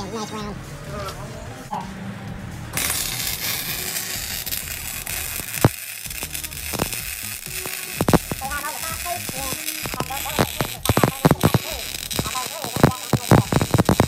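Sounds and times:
welding arc crackling sizzle: 2.8 - 14.0
welding spatter pops: 2.8 - 14.0.

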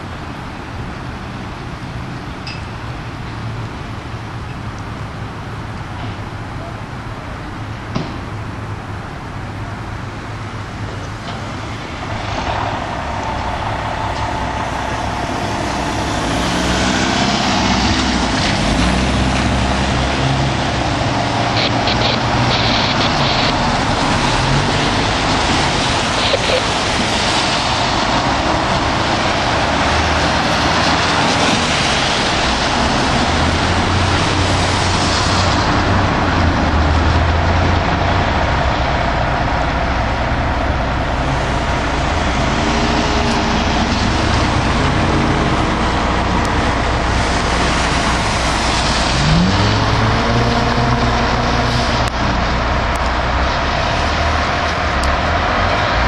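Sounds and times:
cars passing on a wet road: 0.0 - 56.0
fire engine running: 0.0 - 56.0
low rising tone: 11.2 - 25.8.

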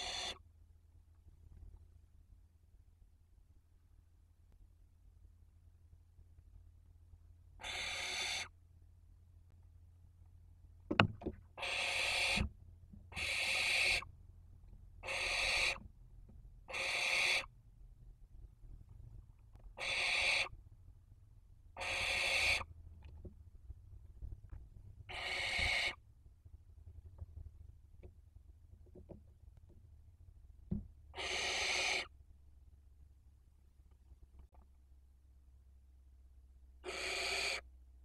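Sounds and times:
owls hissing rasps: 0.0 - 0.4, 7.6 - 8.5, 11.6 - 12.5, 13.1 - 14.1, 15.0 - 15.8, 16.7 - 17.5, 19.8 - 20.5, 21.8 - 22.7, 25.1 - 26.0, 31.1 - 32.1, 36.8 - 37.6.

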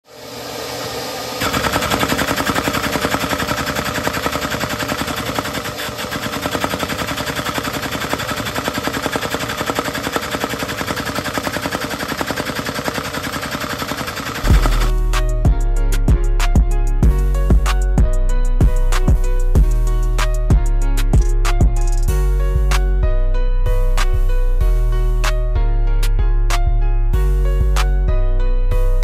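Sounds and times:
clatter of plastic engine parts: 1.4 - 14.9.

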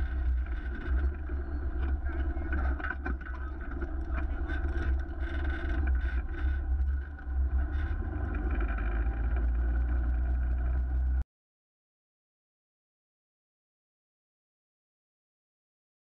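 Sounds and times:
wind buffeting microphone: 0.0 - 8.6
vehicle engine running: 0.0 - 11.2.

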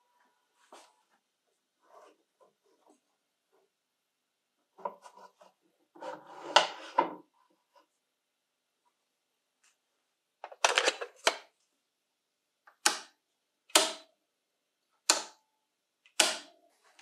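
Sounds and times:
metal scraping on wooden bench: 4.9 - 7.2.

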